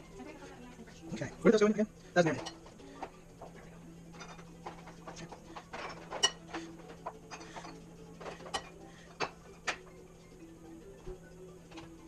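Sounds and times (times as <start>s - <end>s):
metal tongs clinking on ceramic bowls: 2.2s - 3.1s, 4.1s - 9.8s.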